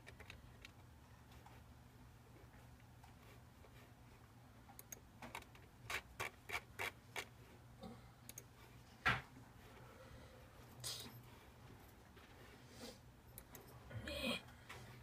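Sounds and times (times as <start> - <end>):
computer mouse clicking: 0.0 - 1.6, 4.7 - 7.3, 8.3 - 8.5, 13.3 - 13.7
faint steady hum: 0.0 - 15.0.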